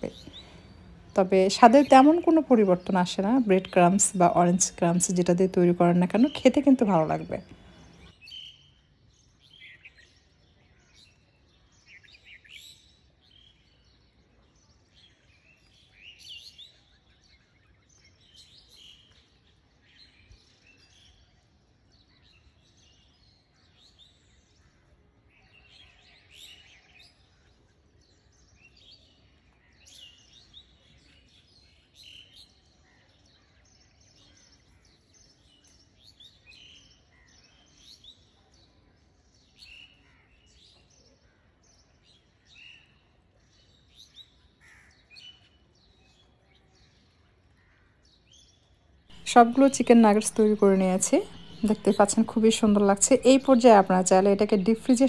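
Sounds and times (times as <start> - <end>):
birds twittering: 0.0 - 8.1, 49.1 - 55.0
low background hiss: 0.0 - 8.1, 49.1 - 55.0.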